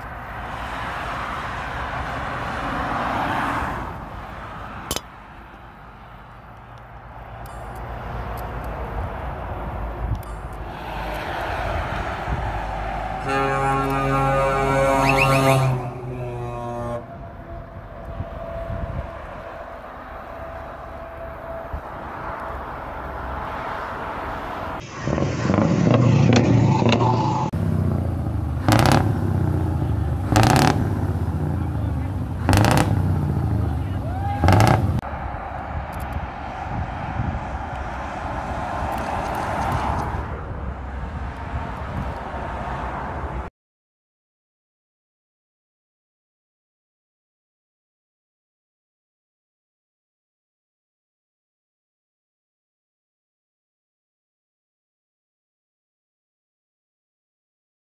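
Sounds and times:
car passing on motorway: 0:00.0 - 0:43.5
distant traffic hum: 0:00.0 - 0:43.5.

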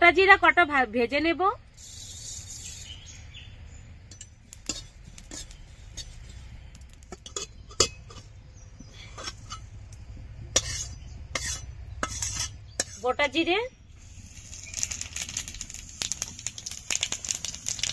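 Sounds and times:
low steady hum: 0:00.0 - 0:17.7
metal spatula clinking and scraping: 0:04.1 - 0:09.8, 0:10.5 - 0:13.3.

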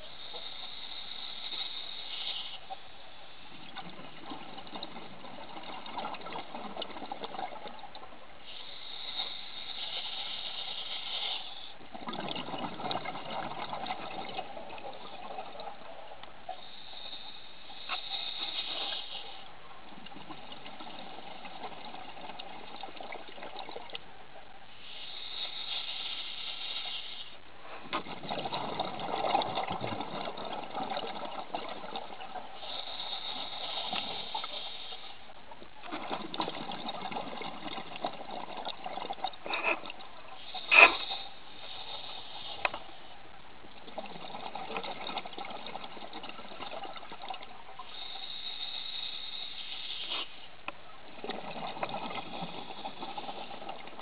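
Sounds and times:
regulator breath hiss: 0:00.0 - 0:02.7, 0:08.4 - 0:11.8, 0:16.5 - 0:19.5, 0:24.7 - 0:27.4, 0:32.6 - 0:35.3, 0:40.4 - 0:43.2, 0:47.8 - 0:50.6
gurgle of exhaled bubbles: 0:03.5 - 0:08.2, 0:11.8 - 0:16.2, 0:27.7 - 0:34.4, 0:35.6 - 0:41.3, 0:43.6 - 0:48.4, 0:51.0 - 0:54.0.

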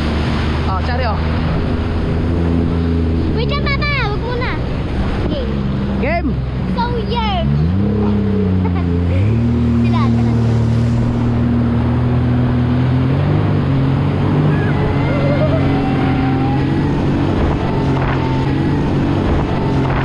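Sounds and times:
jet ski engine running: 0:00.0 - 0:20.0
rush of water: 0:00.0 - 0:20.0
wind noise: 0:10.4 - 0:20.0.

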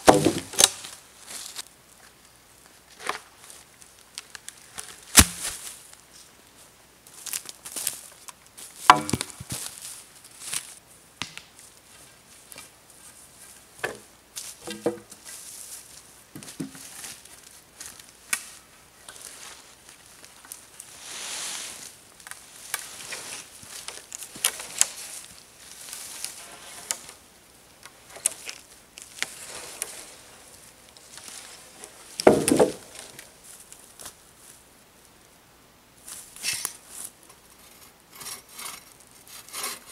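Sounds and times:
wooden poles knocking together: 0:00.0 - 0:00.8, 0:08.8 - 0:09.7, 0:13.8 - 0:15.2, 0:16.4 - 0:16.9, 0:27.8 - 0:33.3
rustling: 0:00.0 - 0:10.8, 0:11.4 - 0:35.2
footsteps crunching on wood shavings: 0:00.1 - 0:01.6, 0:03.2 - 0:06.2, 0:07.1 - 0:10.8, 0:14.4 - 0:34.6.

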